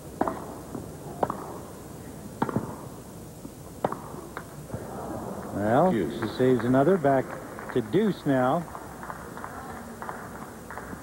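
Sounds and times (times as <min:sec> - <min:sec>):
tennis ball hit by racquet: 0:00.2 - 0:01.6, 0:02.4 - 0:02.9, 0:03.8 - 0:04.5
crowd murmur: 0:04.1 - 0:11.0.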